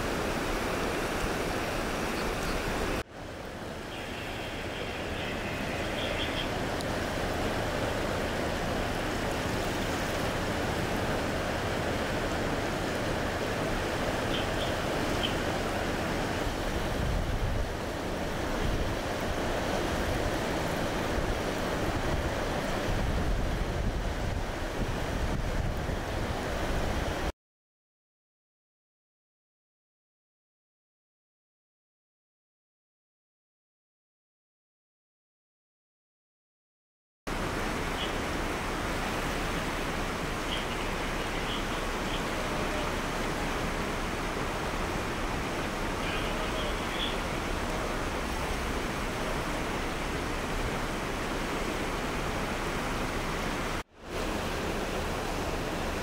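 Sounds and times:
creek water flowing: 0.0 - 27.3, 37.3 - 56.0
wind rumbling on microphone: 0.0 - 27.3.

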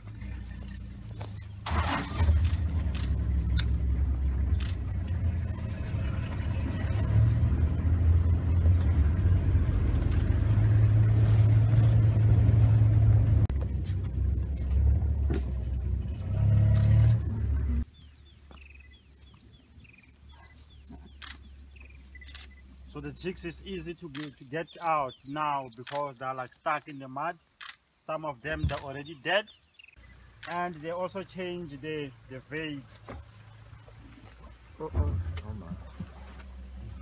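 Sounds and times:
vehicle engine idling: 0.0 - 17.9.

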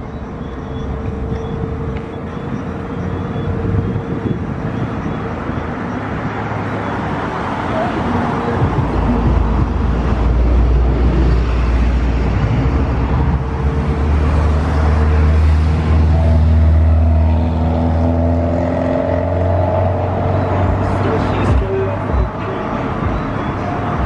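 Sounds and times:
jet engine whine: 0.0 - 7.2.

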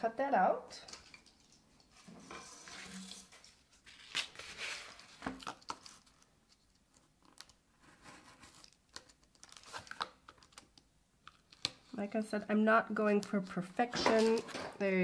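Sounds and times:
paper rustling and crinkling: 1.3 - 10.7.

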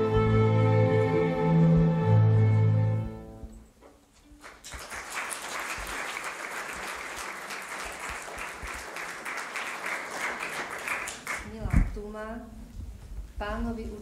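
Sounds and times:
audience applauding: 4.4 - 11.6.

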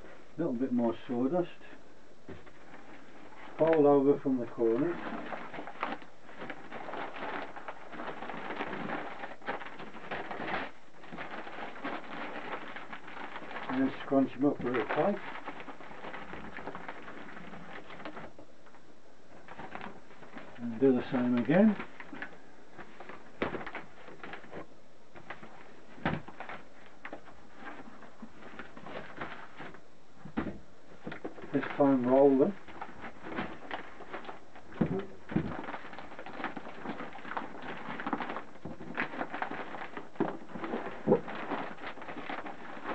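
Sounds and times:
newspaper rustling and crinkling: 2.2 - 42.9
paper crumpling: 2.3 - 42.9
plastic bag crackling: 2.3 - 42.9
thump-like rustle: 25.2 - 31.5.

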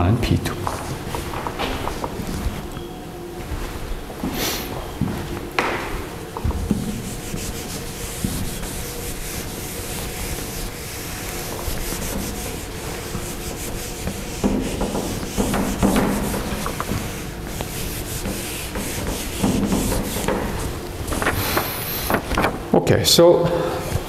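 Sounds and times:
eraser rubbing on whiteboard: 6.8 - 22.2.

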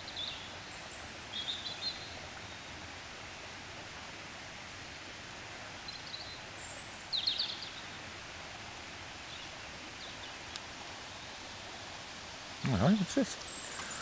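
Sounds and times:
small birds chirping: 0.0 - 2.7, 5.8 - 8.1, 9.2 - 12.0, 12.6 - 14.0
outdoor background hiss: 0.0 - 14.0.

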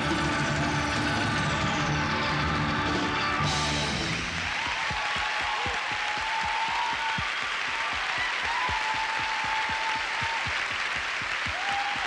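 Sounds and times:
live rock song: 0.0 - 4.4
large audience applauding: 0.0 - 12.0.

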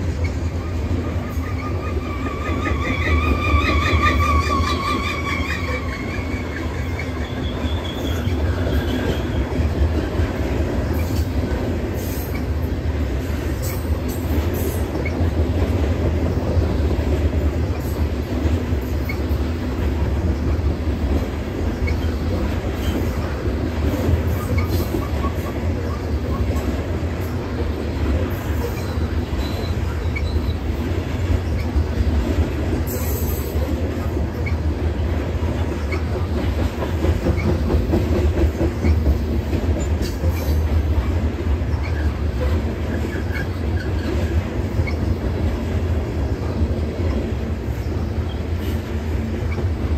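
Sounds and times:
train wheels rumbling on bridge: 0.0 - 49.9
high wheel squeals: 1.3 - 9.6, 28.6 - 30.7.

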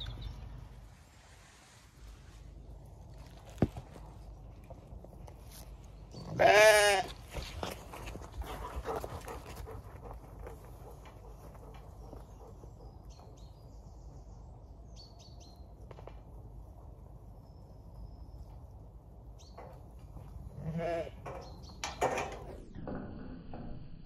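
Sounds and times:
sheep bleating: 6.3 - 7.1.

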